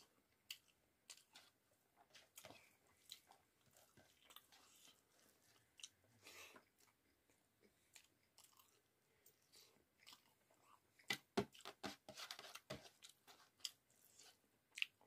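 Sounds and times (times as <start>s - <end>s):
chewing and lip smacks: 0.4s - 6.0s, 6.7s - 11.6s, 14.7s - 15.0s.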